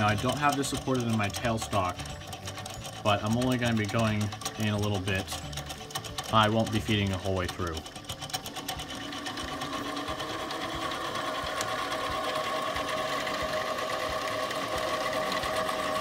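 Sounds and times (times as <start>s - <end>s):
lathe motor whining: 0.0s - 16.0s
tool cutting metal bar: 0.0s - 16.0s.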